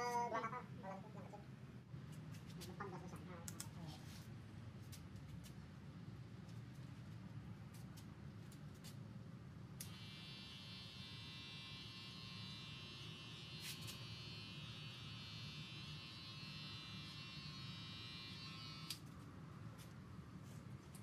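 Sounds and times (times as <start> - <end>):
hair clippers buzzing: 9.8 - 19.0.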